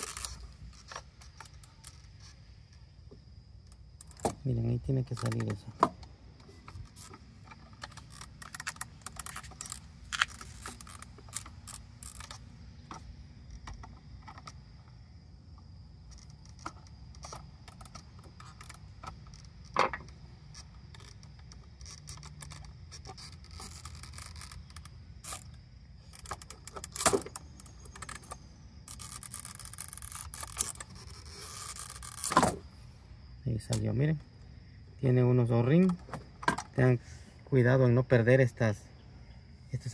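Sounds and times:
plastic clicking and scraping: 0.0 - 15.0, 16.0 - 32.7.

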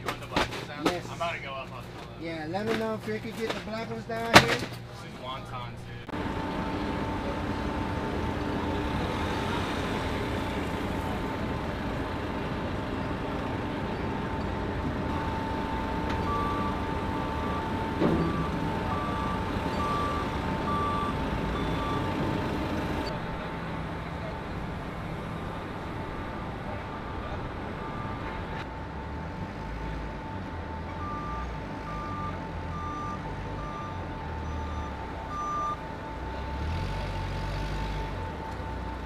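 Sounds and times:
forklift engine running: 5.9 - 39.0
reversing alarm beeps: 15.1 - 23.1, 26.2 - 28.6, 30.2 - 35.8
loud clunk: 17.7 - 18.8.

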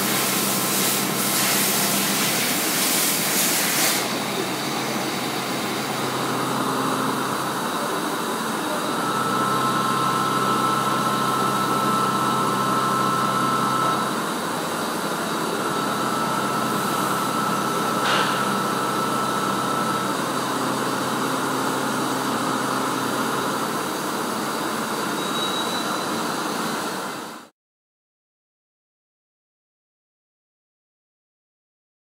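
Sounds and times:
coolant spray: 0.0 - 4.6
milling machine whir: 0.0 - 27.4.

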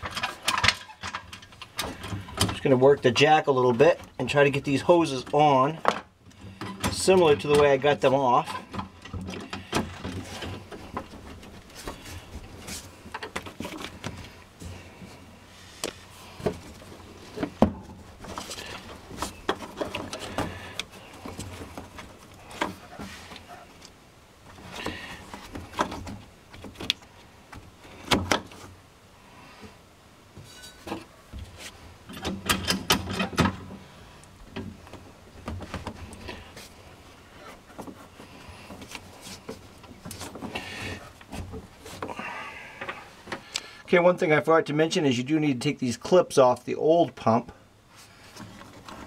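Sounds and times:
hands handling hose and clamp: 0.0 - 28.7.

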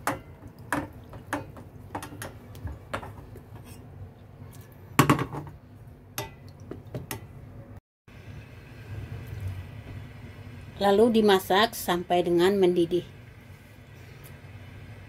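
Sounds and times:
spatula tapping and scraping: 0.0 - 3.9.

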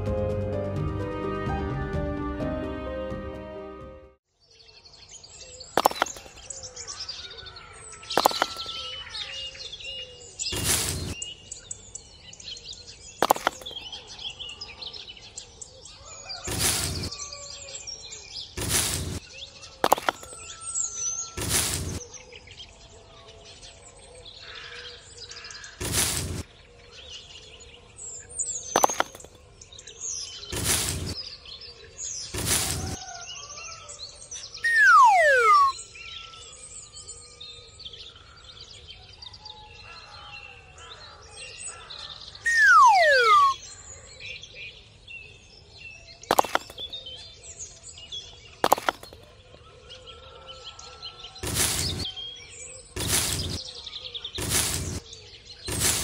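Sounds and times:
birds chirping: 4.5 - 33.2, 34.4 - 36.4, 41.7 - 44.0, 46.0 - 50.2, 51.2 - 56.0.

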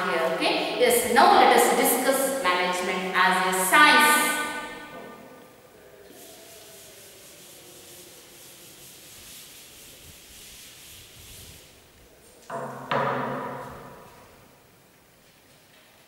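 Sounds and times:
duster rubbing on blackboard: 6.0 - 12.0.

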